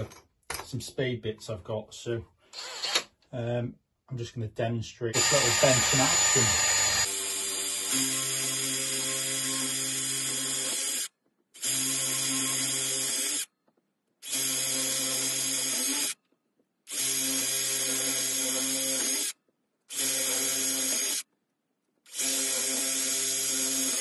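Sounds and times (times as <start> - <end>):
cordless drill boring into wood: 2.5 - 3.1, 5.2 - 13.5, 14.2 - 16.2, 16.9 - 19.3, 19.9 - 21.2, 22.1 - 24.0.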